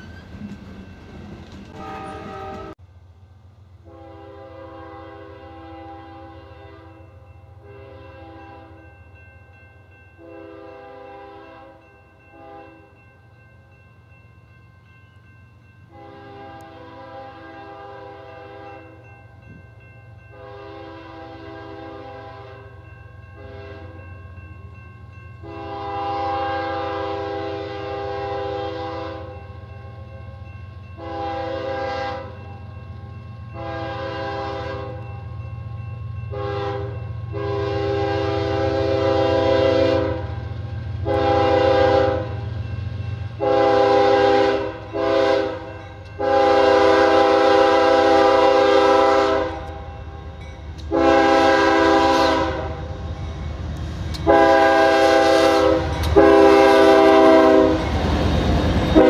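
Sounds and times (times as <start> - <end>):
locomotive air horn blasts: 1.7 - 2.8, 3.8 - 8.8, 10.2 - 12.8, 15.9 - 18.9, 20.3 - 22.7, 23.4 - 24.0, 25.4 - 29.4, 31.0 - 32.4, 33.6 - 35.1, 36.3 - 42.4, 43.4 - 49.9, 50.9 - 52.9, 54.2 - 57.9.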